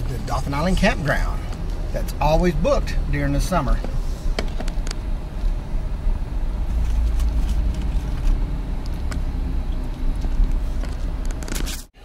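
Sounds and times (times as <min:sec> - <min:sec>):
road and engine rumble: 0:00.0 - 0:12.0.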